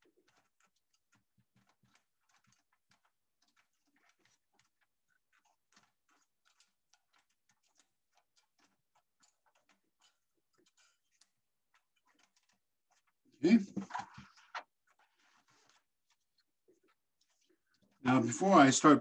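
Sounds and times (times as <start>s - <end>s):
faint clicks and taps on metal: 0.0s - 18.0s.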